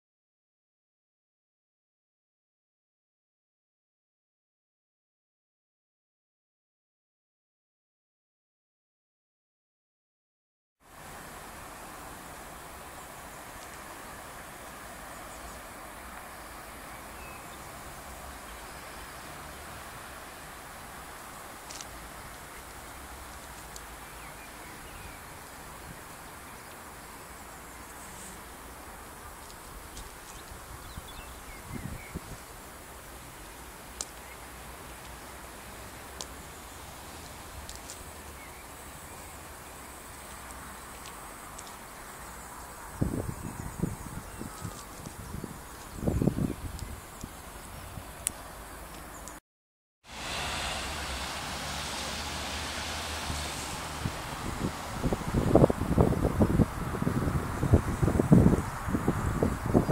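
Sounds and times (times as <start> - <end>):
even hiss: 50.1 - 59.8.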